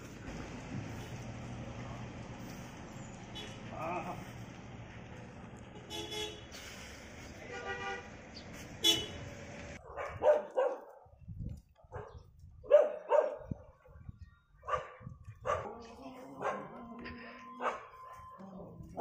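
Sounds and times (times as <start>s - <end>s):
street noise: 0.0s - 19.0s
short vehicle horn toots: 5.8s - 6.6s, 8.8s - 9.2s
dog barking: 9.8s - 11.2s, 11.8s - 13.6s, 14.6s - 16.8s, 17.6s - 18.0s.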